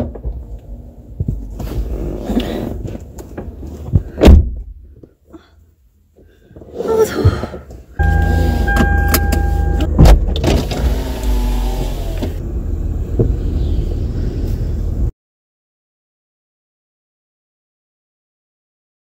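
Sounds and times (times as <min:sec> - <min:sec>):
steady tone: 0:08.0 - 0:10.0
car cabin rumble: 0:08.0 - 0:15.1.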